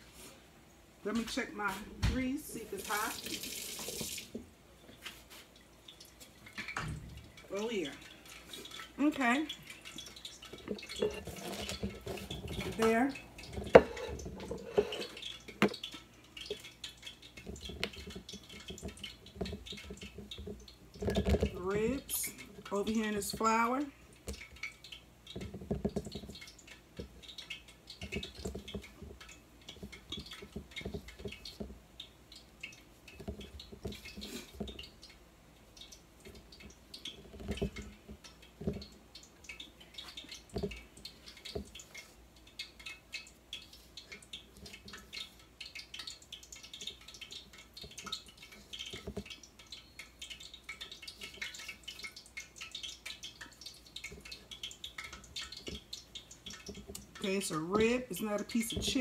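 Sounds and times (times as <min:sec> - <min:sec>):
ribs thumping in metal bowl: 0:08.6 - 0:24.7, 0:54.1 - 0:59.0.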